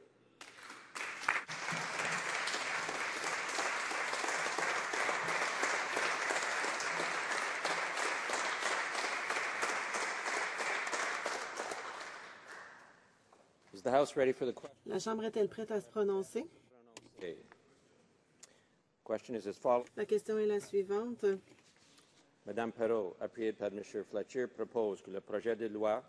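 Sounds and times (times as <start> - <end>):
crowd applauding: 0.4 - 13.0.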